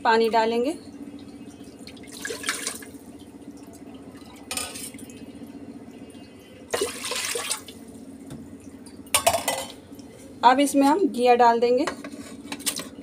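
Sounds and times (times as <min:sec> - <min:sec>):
low hum: 0:00.0 - 0:11.2
water splashing into a pot: 0:01.2 - 0:05.3, 0:06.7 - 0:07.8.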